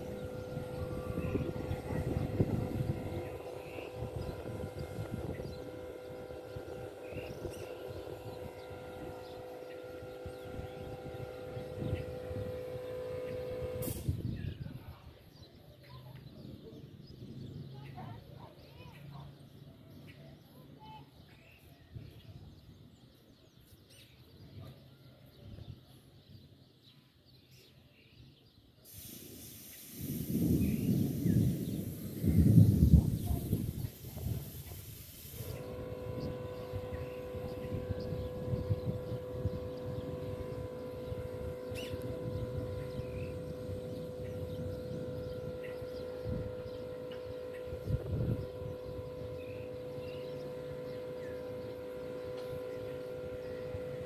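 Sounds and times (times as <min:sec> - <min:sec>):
steady droning tone: 0:00.0 - 0:13.8, 0:35.4 - 0:54.0
low background rumble: 0:00.0 - 0:15.0, 0:35.4 - 0:54.0
wind buffeting microphone: 0:00.0 - 0:15.2, 0:29.2 - 0:54.0
hiss: 0:13.4 - 0:14.2, 0:28.8 - 0:37.8
bird chirps: 0:35.5 - 0:53.8.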